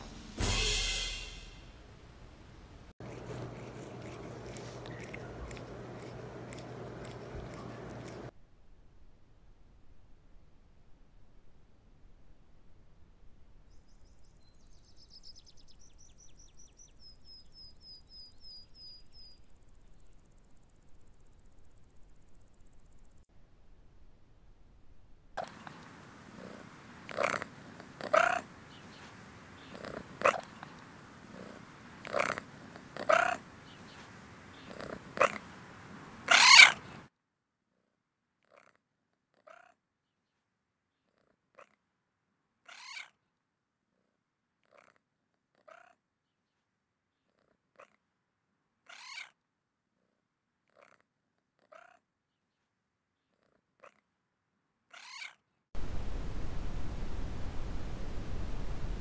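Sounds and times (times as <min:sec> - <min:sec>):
cat meowing: 0:36.3 - 0:36.8.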